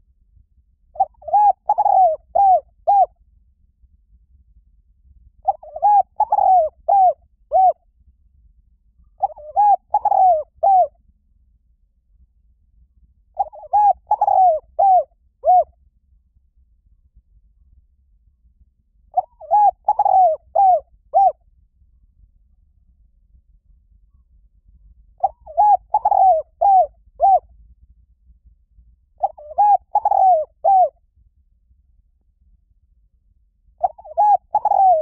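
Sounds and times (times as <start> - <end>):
dove cooing: 1.0 - 3.1, 5.4 - 7.8, 9.2 - 10.9, 13.4 - 15.7, 19.1 - 21.4, 25.2 - 27.4, 29.2 - 31.0, 33.8 - 35.0.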